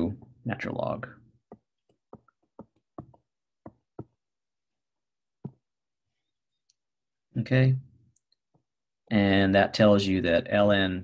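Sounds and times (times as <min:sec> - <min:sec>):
stylus tapping on tablet screen: 0:01.4 - 0:04.3, 0:05.4 - 0:05.7.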